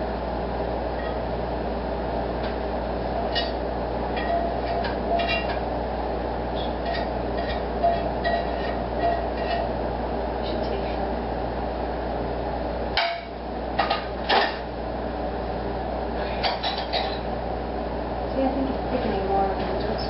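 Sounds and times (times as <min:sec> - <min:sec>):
mechanical hum and whir: 0:00.0 - 0:20.0
metal cookware clinking: 0:03.3 - 0:05.6, 0:06.6 - 0:09.7.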